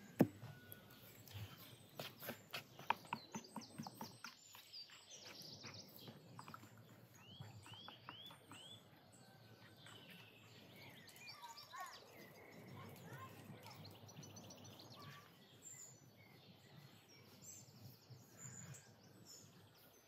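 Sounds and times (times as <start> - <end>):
birds chirping: 0.0 - 20.0.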